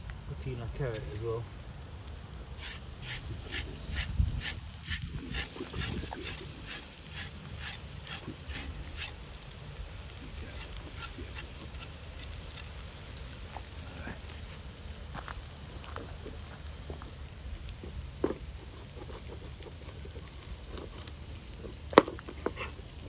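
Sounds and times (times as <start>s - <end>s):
knife scraping strokes on carrot: 2.6s - 9.4s, 10.0s - 12.8s, 17.9s - 22.8s.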